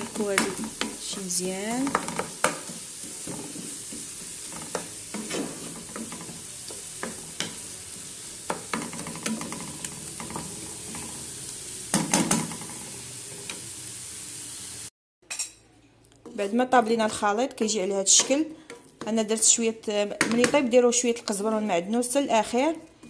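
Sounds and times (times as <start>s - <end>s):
spoon scraping and tapping pan: 0.0s - 11.1s, 17.0s - 19.5s
vegetables sizzling in oil: 0.0s - 14.9s.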